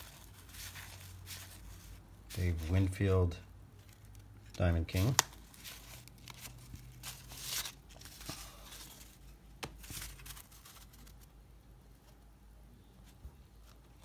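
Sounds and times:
cards rustling on wooden table: 0.0 - 3.1, 3.8 - 11.3.

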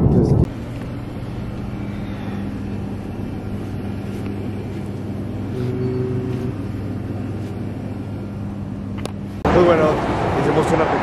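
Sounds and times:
cooler and ventilation hum: 0.0 - 11.0
brief higher tone: 5.4 - 7.1.

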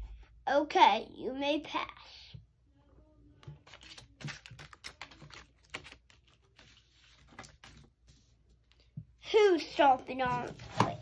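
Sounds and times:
paper rustling: 3.5 - 8.8, 9.8 - 11.0.

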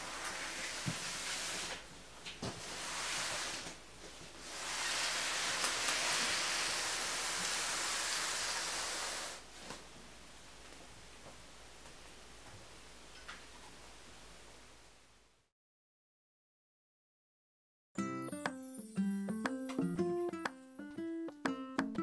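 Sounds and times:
cardboard box sliding on wooden floor: 0.0 - 1.9, 2.5 - 9.4.

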